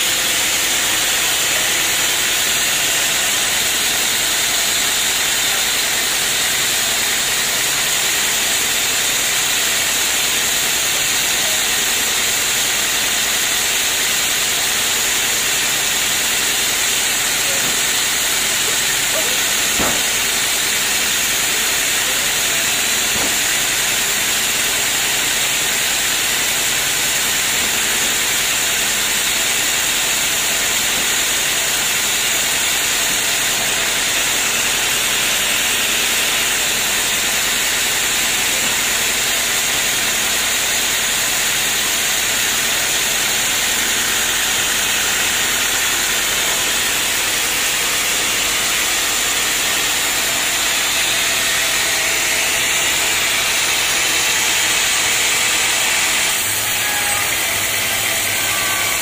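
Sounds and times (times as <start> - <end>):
band saw blade hissing: 14.9 - 29.6.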